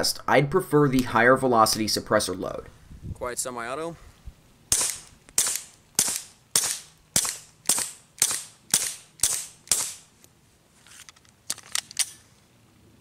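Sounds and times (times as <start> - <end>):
suppressed pistol shots: 4.7 - 10.1.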